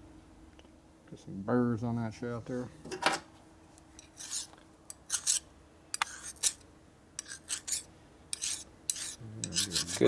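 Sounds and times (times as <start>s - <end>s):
hand file rasping on steel: 4.0s - 5.4s, 6.0s - 6.6s, 7.2s - 10.0s.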